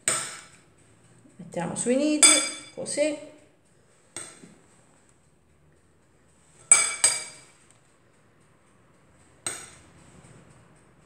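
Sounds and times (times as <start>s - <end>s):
spoon clinking on ceramic dish: 2.2s - 2.8s.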